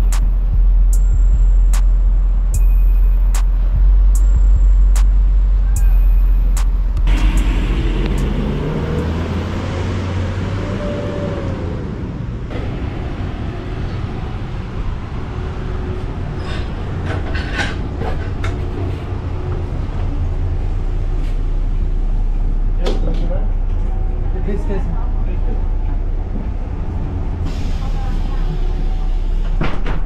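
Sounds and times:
rising whine: 0.0 - 14.4.

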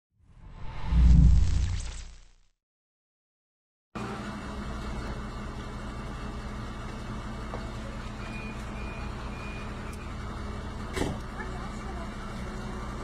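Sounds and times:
vehicle engine idling: 4.0 - 13.0.

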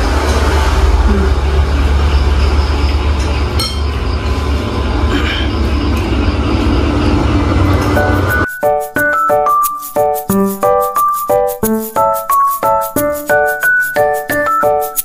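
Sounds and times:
low rumble: 0.0 - 8.4
tableware clink: 3.6 - 3.9
keyboard music: 7.6 - 15.0.

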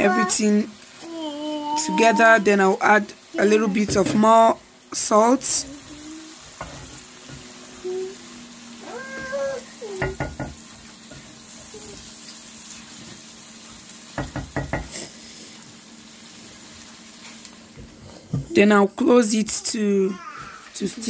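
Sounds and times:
low sizzle: 0.0 - 21.0
wooden spoon knocking pot: 10.0 - 10.6, 14.2 - 14.9.

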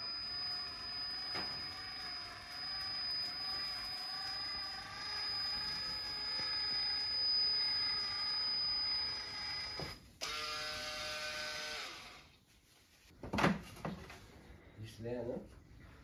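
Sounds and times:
caulking gun motor whirring: 0.0 - 12.3.

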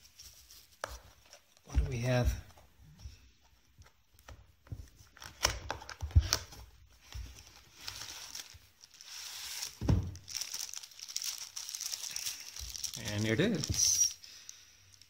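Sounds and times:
plastic bag crinkling: 7.4 - 15.0.

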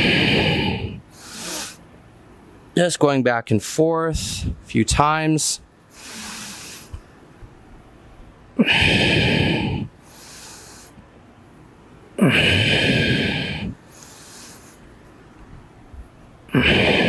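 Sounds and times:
man breathing heavily: 0.0 - 1.8, 4.1 - 4.6, 5.9 - 7.0, 8.6 - 11.2, 12.2 - 15.0, 16.5 - 17.0.

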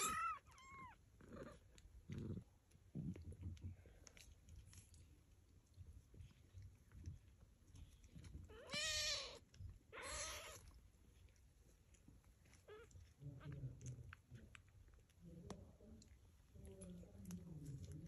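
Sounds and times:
cat meowing: 0.0 - 1.0, 8.5 - 10.7.

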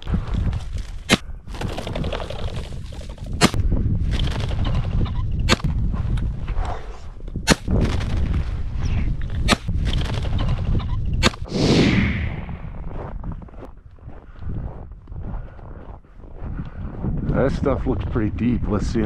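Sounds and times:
wind rumble on microphone: 0.0 - 19.0
short rushing sound: 11.5 - 12.9.

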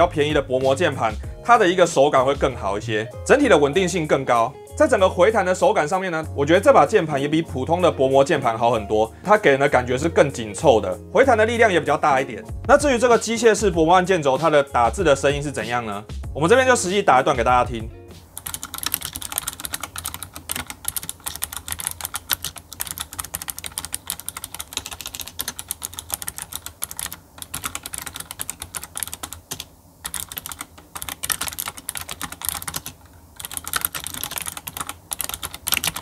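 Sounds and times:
fast keyboard typing: 18.3 - 36.0.

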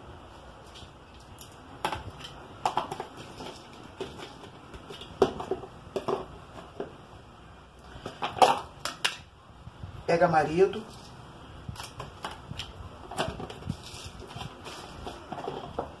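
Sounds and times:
plastic containers clicking and tapping: 1.8 - 7.0.

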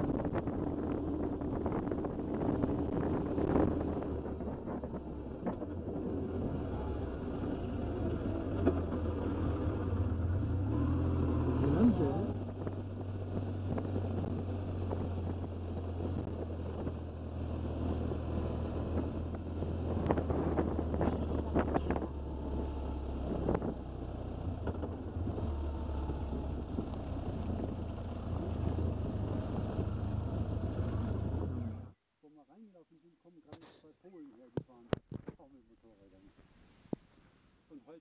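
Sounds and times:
wind rush on microphone: 0.0 - 7.2, 12.2 - 24.6, 25.2 - 31.6
motorcycle engine cruising: 0.0 - 32.0.

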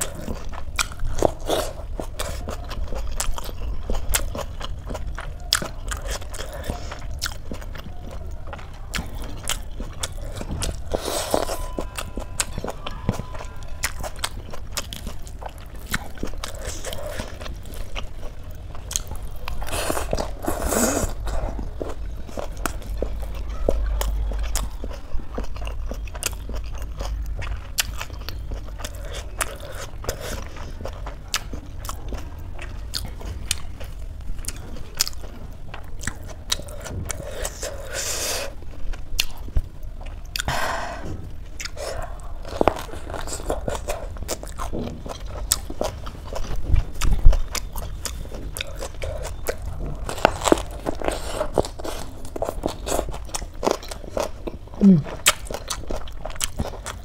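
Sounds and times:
chewing with wet mouth clicks: 0.0 - 40.6, 41.3 - 57.0
crunchy bites: 39.2 - 57.0.

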